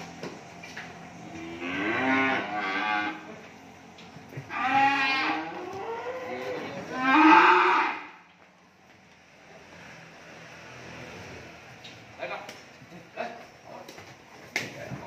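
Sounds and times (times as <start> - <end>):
cattle mooing: 1.2 - 3.3, 4.4 - 8.2.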